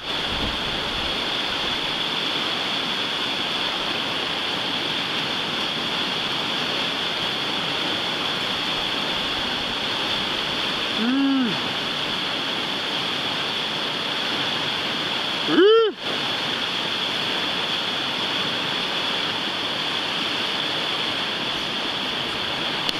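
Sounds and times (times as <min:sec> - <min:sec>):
whitewater rushing: 0:00.0 - 0:22.9
person shouting: 0:11.0 - 0:11.6, 0:15.5 - 0:16.0.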